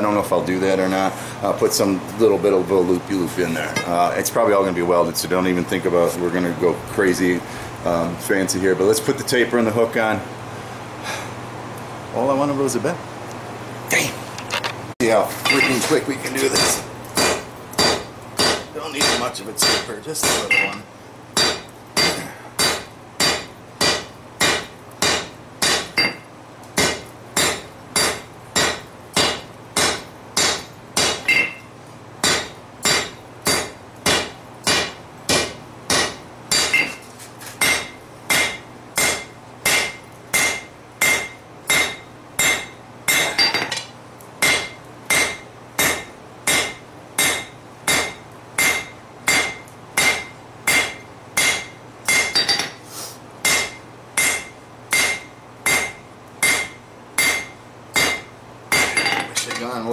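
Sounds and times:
hammer striking steel on anvil: 15.5s - 20.8s, 21.4s - 26.2s, 26.8s - 31.6s, 32.2s - 37.0s, 37.6s - 52.8s, 53.4s - 59.7s.

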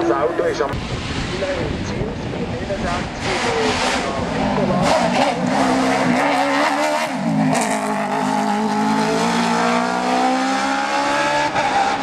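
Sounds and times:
race car engine accelerating past: 3.3s - 12.0s.

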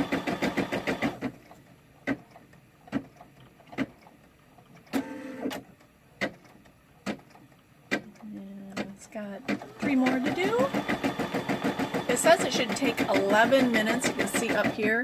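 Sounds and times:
embroidery machine stitching: 0.0s - 2.2s, 8.8s - 15.0s.

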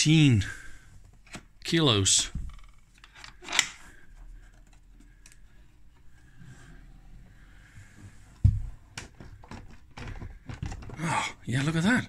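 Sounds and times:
wooden lid clicks and rattles: 9.0s - 11.0s.

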